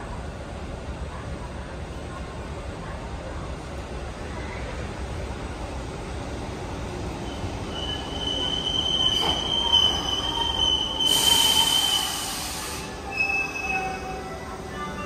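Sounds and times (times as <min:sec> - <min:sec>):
train wheels squealing on rails: 0:07.2 - 0:15.0
hiss: 0:11.0 - 0:13.0.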